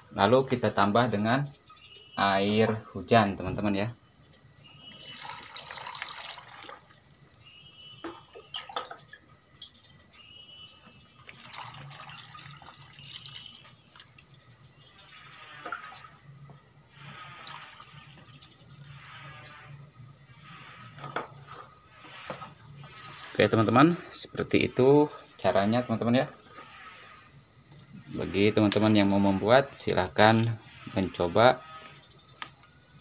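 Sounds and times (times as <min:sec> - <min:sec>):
water pouring into plastic bucket: 0:05.0 - 0:06.8, 0:11.3 - 0:13.5.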